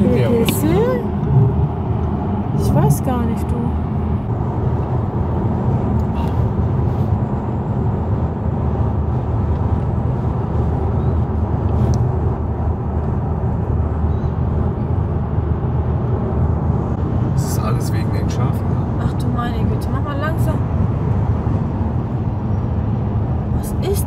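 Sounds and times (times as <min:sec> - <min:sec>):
car cabin road rumble: 0:00.0 - 0:24.0.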